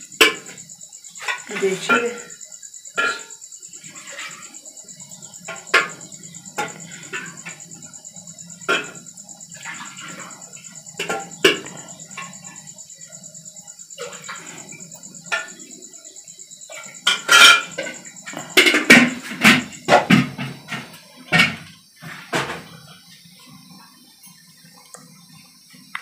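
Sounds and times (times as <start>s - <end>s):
metal pots clanking: 0.2s - 12.8s, 14.0s - 15.9s, 16.7s - 22.8s.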